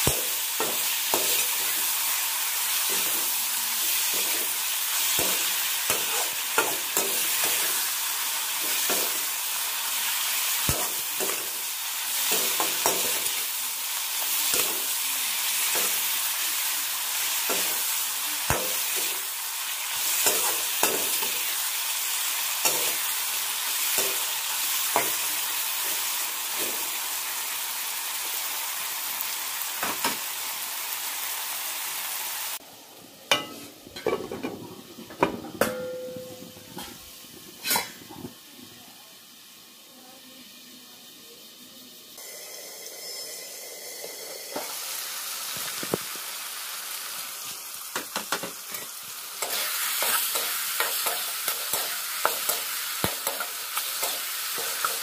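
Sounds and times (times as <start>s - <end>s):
vegetables sizzling in hot oil: 0.0s - 55.0s
metal spatula scraping a wok: 35.7s - 38.1s.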